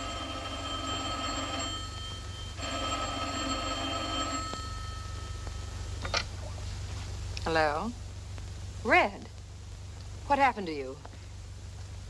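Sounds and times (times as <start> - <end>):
telephone bell ringing: 0.0 - 5.9.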